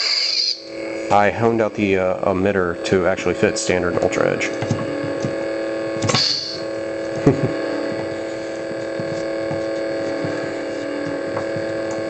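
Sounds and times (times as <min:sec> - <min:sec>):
lightsaber hum: 0:00.0 - 0:12.0
sharp click: 0:06.0 - 0:06.6.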